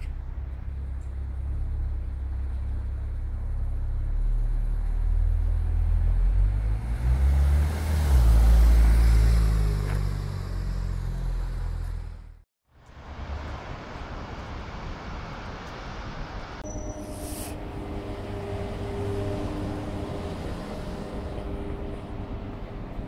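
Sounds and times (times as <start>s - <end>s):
sports car engine passing: 3.4s - 12.0s, 17.6s - 23.0s
tyre hiss: 17.0s - 17.6s.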